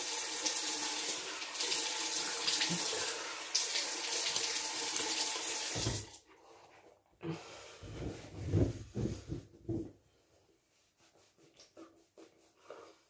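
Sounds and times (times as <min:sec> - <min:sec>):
tap water running into sink: 0:00.0 - 0:06.2.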